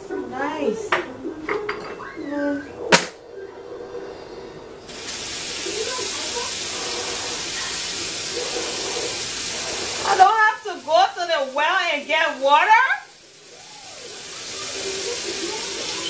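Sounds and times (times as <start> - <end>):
water running into a sink: 4.9 - 16.0.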